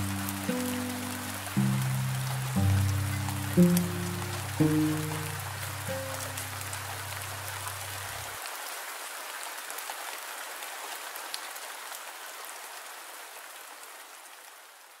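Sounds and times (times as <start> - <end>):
low cello note: 0.0 - 7.5
steady rain falling: 0.0 - 15.0.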